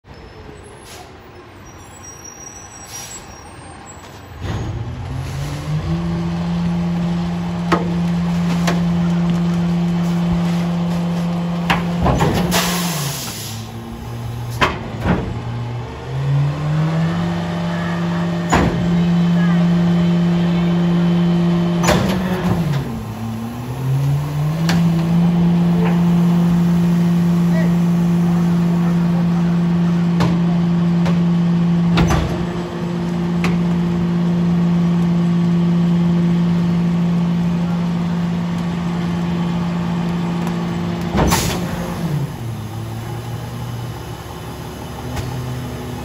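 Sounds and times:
truck engine idling and revving: 3.0 - 46.0.

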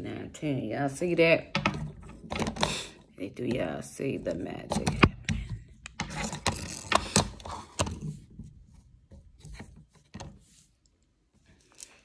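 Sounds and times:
brushing and rustling: 8.4 - 12.0.

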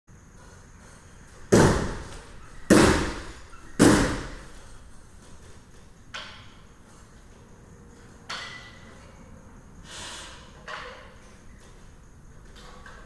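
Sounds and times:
metal bar clanging on rungs: 8.3 - 8.9.

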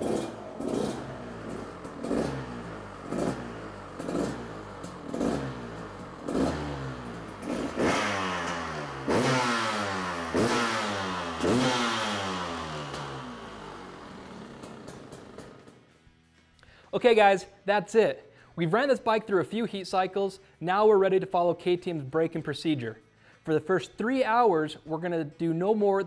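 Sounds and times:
two-stroke engine revving: 0.0 - 15.8.

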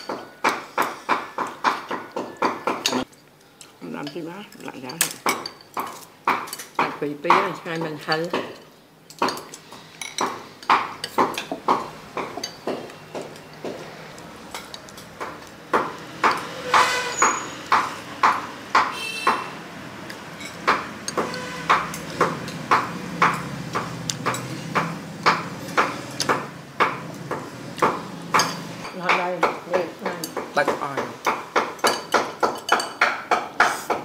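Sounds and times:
utensils clinking against ceramic bowl: 0.0 - 17.8, 20.1 - 23.5, 28.3 - 34.0.

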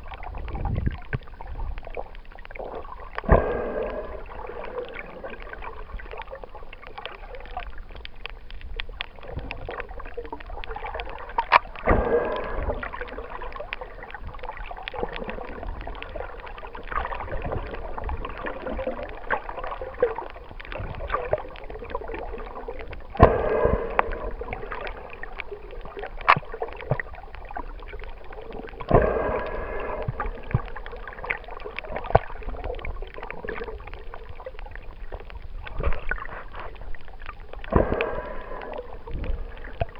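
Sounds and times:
muffled underwater swish: 10.7 - 39.9.

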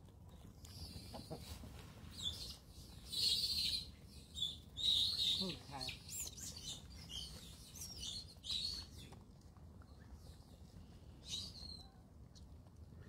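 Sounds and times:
birds chirping: 2.1 - 9.2.

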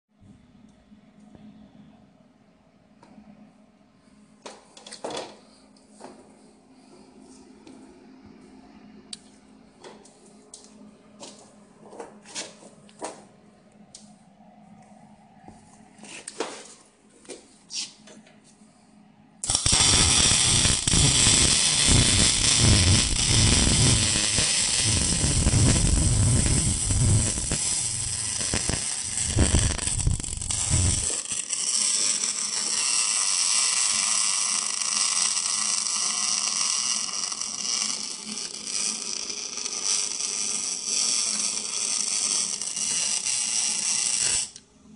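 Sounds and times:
welding arc crackling: 19.4 - 44.6.

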